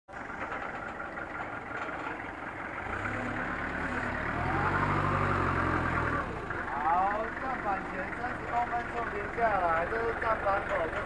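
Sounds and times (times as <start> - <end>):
deep engine hum: 0.1 - 11.0
forklift engine running: 0.1 - 11.0.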